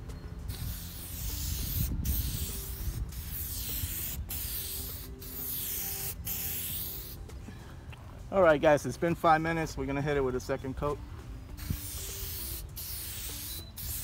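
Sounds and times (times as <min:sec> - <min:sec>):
aerosol can spraying: 0:00.5 - 0:07.2, 0:11.6 - 0:14.0.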